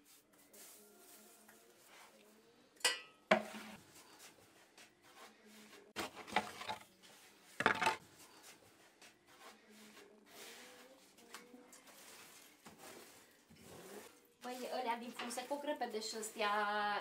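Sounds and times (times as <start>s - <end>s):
wooden peel knocking and scraping: 6.0s - 6.8s, 7.6s - 8.0s.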